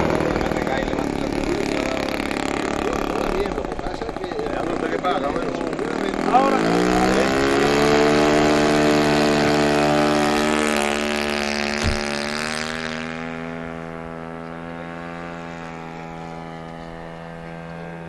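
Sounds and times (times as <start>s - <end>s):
model plane engine at full throttle: 0.0s - 18.0s
low thump: 11.8s - 12.2s.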